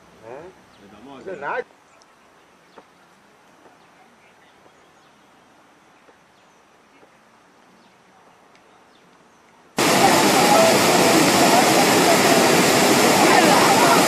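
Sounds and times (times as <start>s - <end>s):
faint bird chirps: 1.8s - 9.6s.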